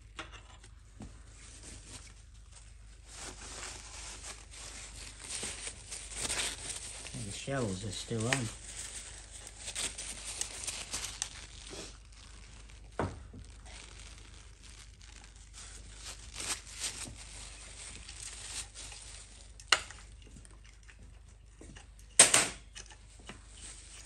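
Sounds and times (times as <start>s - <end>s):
paper towel rustling: 1.2s - 19.6s.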